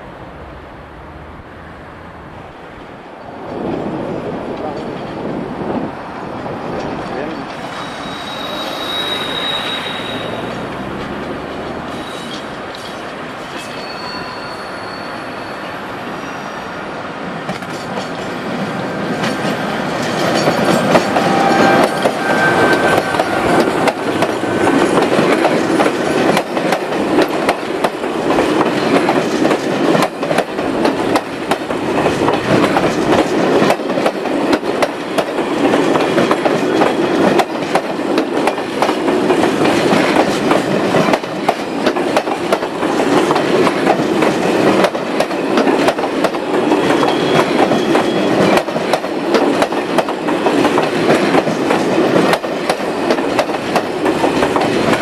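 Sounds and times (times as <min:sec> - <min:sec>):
train passing close by: 0:00.0 - 0:55.0
wheel squeal: 0:07.6 - 0:10.7, 0:11.9 - 0:16.7, 0:20.4 - 0:24.7, 0:46.7 - 0:48.5.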